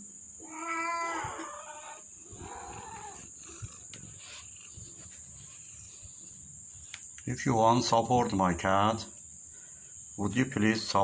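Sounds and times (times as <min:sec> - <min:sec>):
cat meowing: 0:00.4 - 0:03.6.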